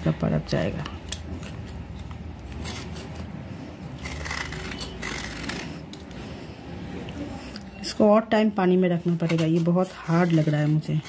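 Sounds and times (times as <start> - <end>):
knife scraping clay: 1.0 - 6.1, 9.0 - 11.0.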